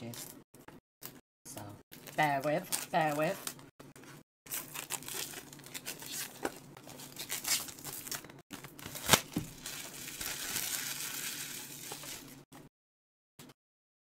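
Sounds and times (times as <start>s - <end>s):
cellophane crinkling and tearing: 1.9s - 3.6s, 4.5s - 12.4s.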